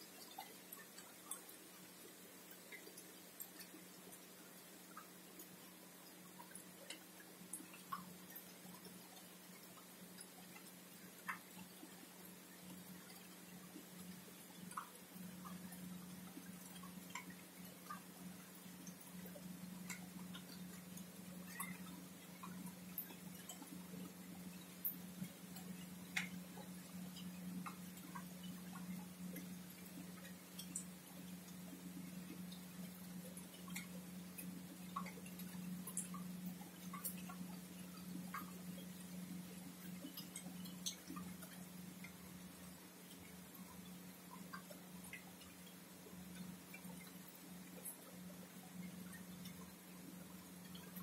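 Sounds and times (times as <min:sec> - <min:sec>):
low steady hum: 0:00.0 - 0:51.0
soft ticks and clicks: 0:00.0 - 0:51.0.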